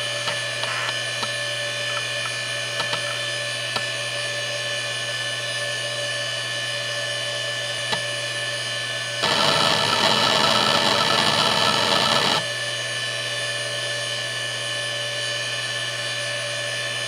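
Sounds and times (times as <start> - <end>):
hard drive spinning hum: 0.0 - 3.9, 9.2 - 12.5.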